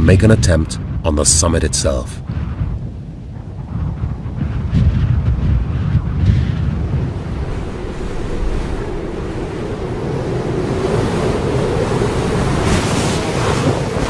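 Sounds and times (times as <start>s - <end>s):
wind blowing: 0.0s - 14.0s.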